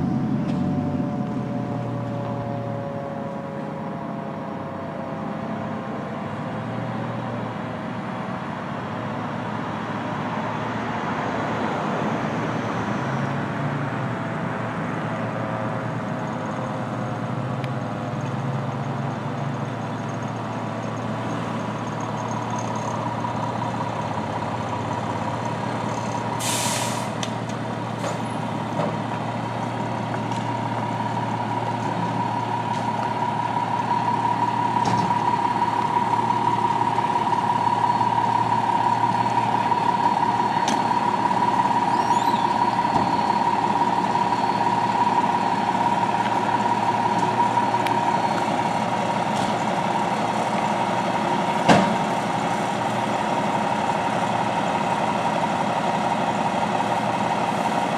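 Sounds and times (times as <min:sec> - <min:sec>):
diesel engine running: 0:00.0 - 0:57.9
air brake hiss: 0:26.4 - 0:27.2.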